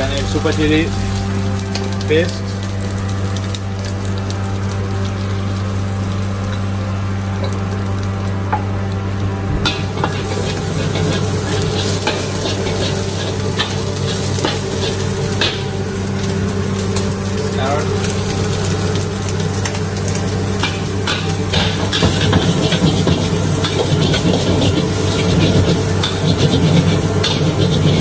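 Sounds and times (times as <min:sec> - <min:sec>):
food sizzling in hot oil: 0:00.0 - 0:09.0, 0:09.6 - 0:28.0
steady low hum: 0:00.0 - 0:28.0
spatula scraping a wok: 0:09.6 - 0:16.3, 0:18.0 - 0:28.0.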